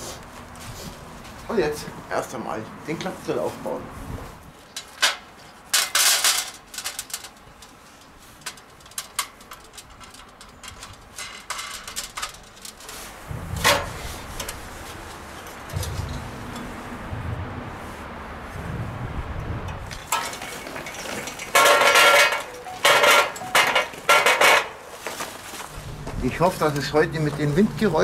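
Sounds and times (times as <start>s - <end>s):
metal panels clinking: 4.7s - 17.3s, 19.7s - 25.6s
sharp metal knocks: 13.3s - 17.8s, 19.7s - 24.8s.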